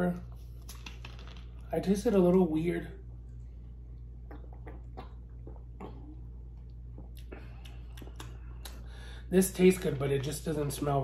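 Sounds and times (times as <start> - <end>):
low hum: 0.0 - 11.0
person swallowing: 4.2 - 8.7.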